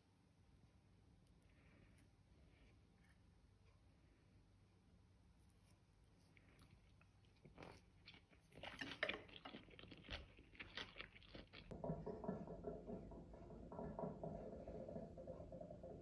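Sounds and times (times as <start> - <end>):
crisp chewing crunches: 6.3 - 11.7.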